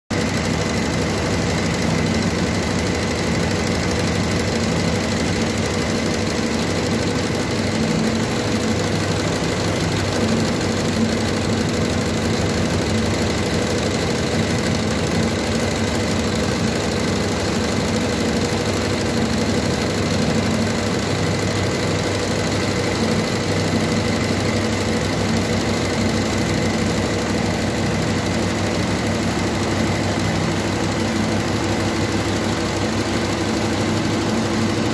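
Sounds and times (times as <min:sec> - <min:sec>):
embroidery machine stitching: 0:00.1 - 0:34.9.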